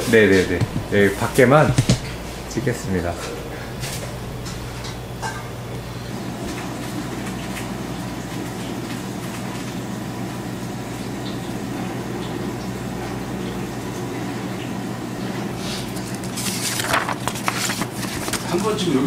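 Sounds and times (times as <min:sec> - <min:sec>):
paper menu rustling: 0:00.0 - 0:05.0, 0:15.6 - 0:19.0
ventilation hum: 0:00.0 - 0:19.0.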